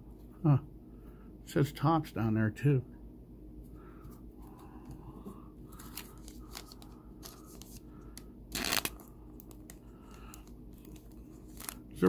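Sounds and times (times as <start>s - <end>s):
cards clicking and rustling: 5.8s - 12.0s
plastic sleeve rustling: 8.5s - 12.0s.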